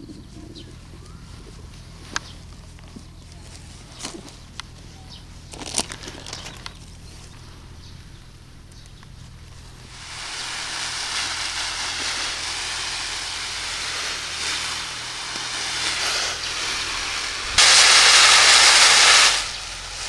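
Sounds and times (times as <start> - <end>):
steady hiss: 7.2 - 20.0.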